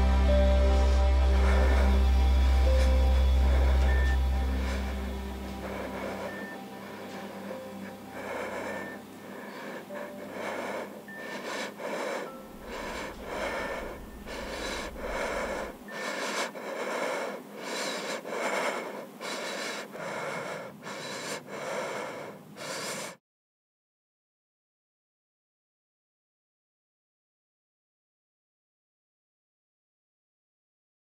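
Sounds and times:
woman crying with ragged breathing: 0:00.0 - 0:23.2.

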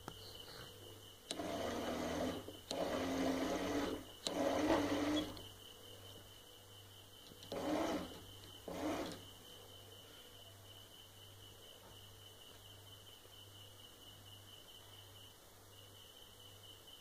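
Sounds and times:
low electrical hum: 0:00.0 - 0:17.0
small water pump motor running: 0:01.3 - 0:05.5, 0:07.4 - 0:09.2.

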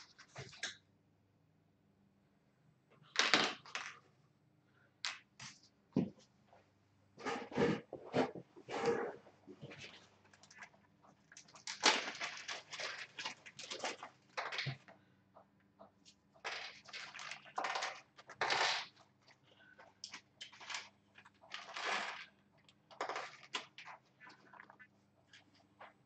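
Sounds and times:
plastic bag crinkling: 0:11.3 - 0:14.8, 0:16.4 - 0:19.0.

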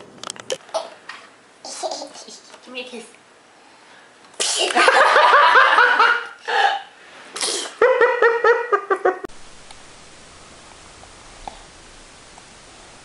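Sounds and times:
toddler laughing: 0:07.7 - 0:09.3.

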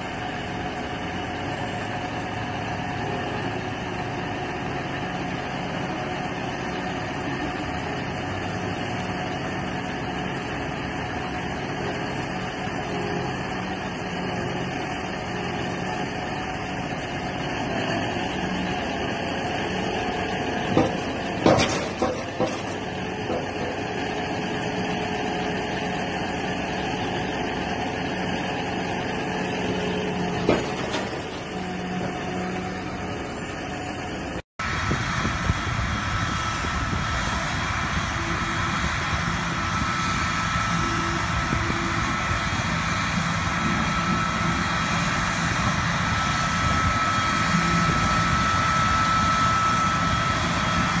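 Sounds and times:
tractor engine running: 0:00.0 - 0:51.0.

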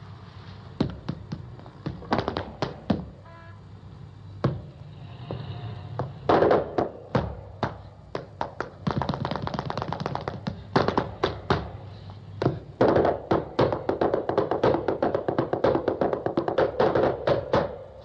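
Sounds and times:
dance shoes stamping on wooden floor: 0:06.0 - 0:11.8, 0:12.4 - 0:17.8.

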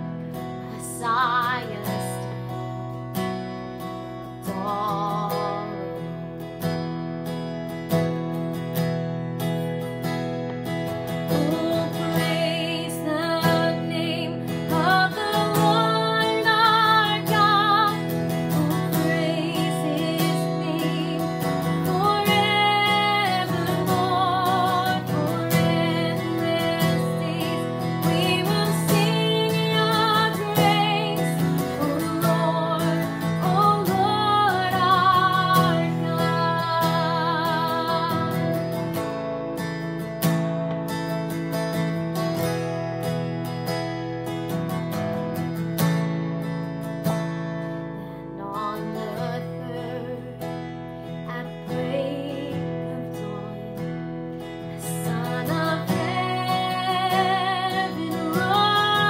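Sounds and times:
strummed acoustic guitar: 0:00.0 - 0:59.0
woman singing with vibrato: 0:00.7 - 0:02.4, 0:04.4 - 0:06.1, 0:11.3 - 0:38.8, 0:48.2 - 0:50.6, 0:51.2 - 0:53.9, 0:54.8 - 0:59.0.

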